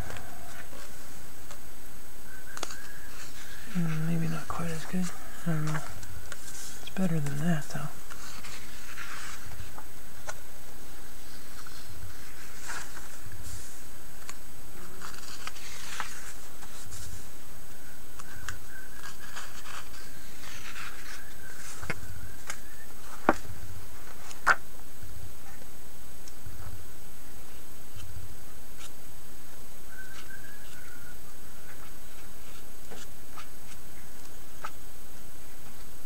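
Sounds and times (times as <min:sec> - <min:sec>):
paper pages rustling: 0:00.0 - 0:01.6, 0:02.5 - 0:17.4, 0:18.1 - 0:24.6, 0:31.6 - 0:34.8.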